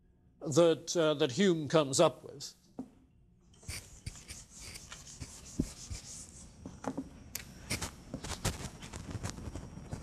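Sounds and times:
eraser rubbing on whiteboard: 3.6s - 6.5s.

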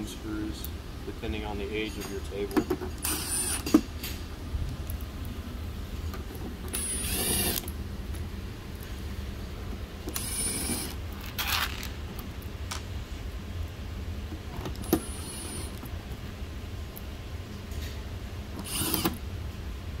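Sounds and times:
cordless drill motor whine: 3.0s - 3.8s, 6.7s - 7.7s, 10.1s - 11.9s, 14.8s - 15.8s, 18.6s - 19.2s.

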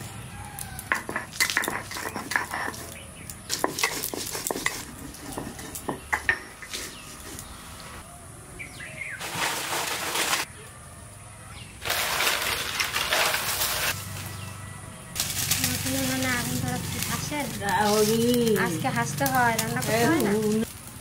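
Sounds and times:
stone roller scraping on grinding slab: 0.9s - 7.5s, 9.2s - 10.5s, 11.8s - 14.0s
bird chirping: 1.7s - 3.8s, 5.4s - 9.2s.

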